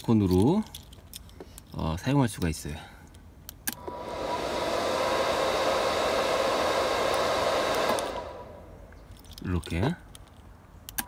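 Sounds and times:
fan heater blowing whir: 3.7s - 9.1s.

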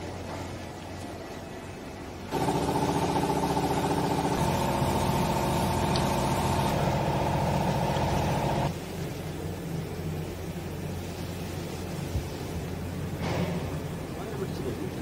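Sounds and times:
low steady hum: 0.0s - 15.0s
machine motor running: 2.3s - 8.7s.

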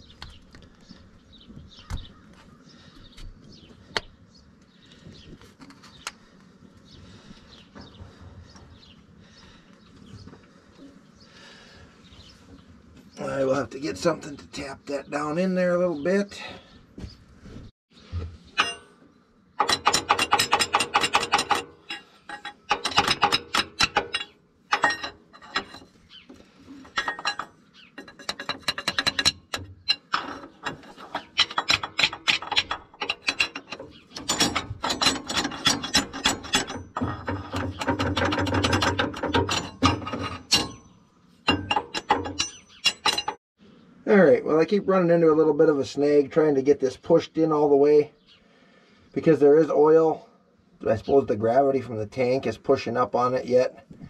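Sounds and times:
metal-on-metal tapping: 18.6s - 19.0s, 19.6s - 26.0s, 26.8s - 43.4s.

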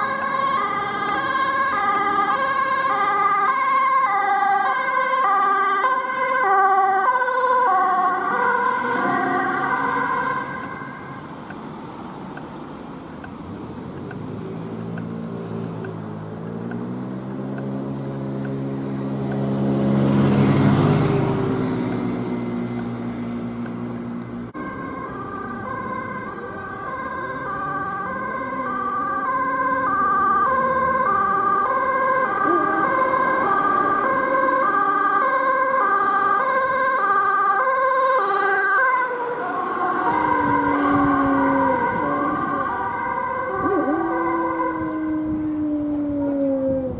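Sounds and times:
two-tone ambulance siren: 0.0s - 11.5s, 16.5s - 46.9s
vehicle engine accelerating: 13.2s - 37.0s, 37.8s - 46.9s.

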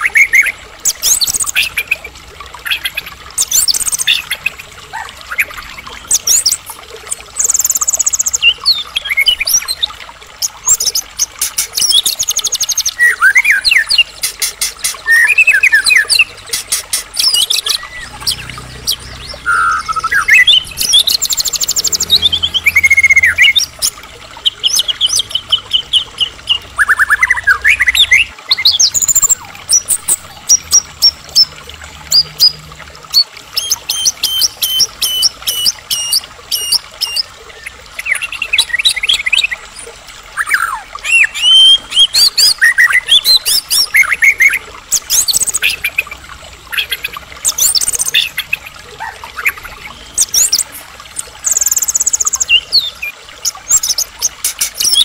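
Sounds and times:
songbird whistling song: 11.7s - 30.1s.

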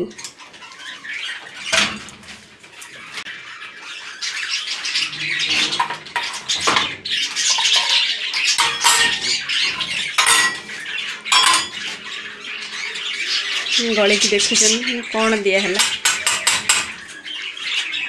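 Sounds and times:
parakeets chattering and squawking: 0.0s - 18.0s
steel bowls clinking: 7.4s - 12.0s.

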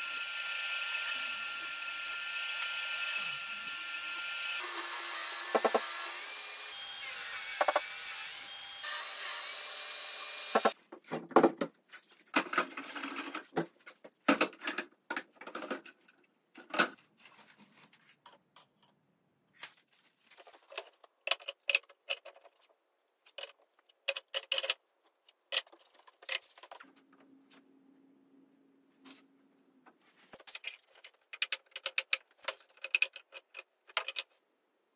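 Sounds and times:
table saw running: 0.0s - 10.8s.

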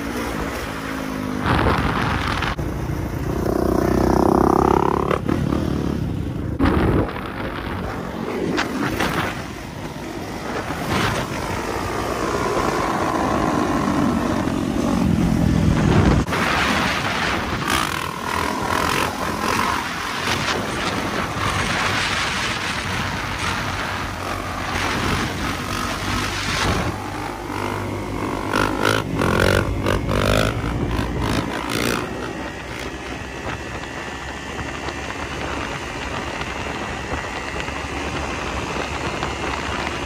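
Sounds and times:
dirt bike engine revving: 1.4s - 7.2s, 10.4s - 34.1s.

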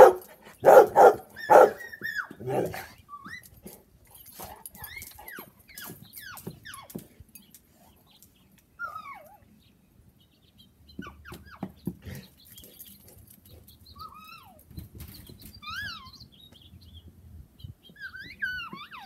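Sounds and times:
dog-like whines and yips: 0.0s - 3.6s, 8.8s - 9.4s, 15.6s - 16.2s, 18.0s - 19.0s.

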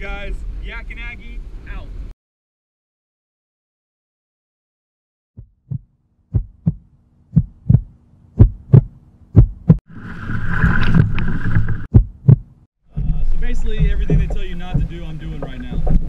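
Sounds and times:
heartbeat thumps: 5.4s - 9.8s, 11.8s - 16.0s
kayak splashing through surf: 9.9s - 11.8s.

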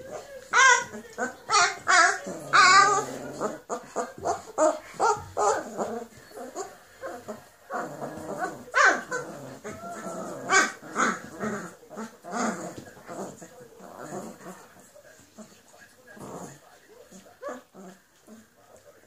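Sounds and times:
puppies whimpering: 0.0s - 14.6s.

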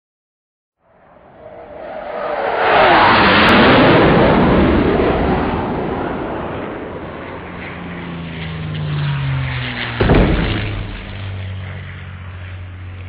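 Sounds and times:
heavy thud: 10.0s - 11.7s
rushing rumble: 10.0s - 12.1s
steady low hum: 10.0s - 12.7s.

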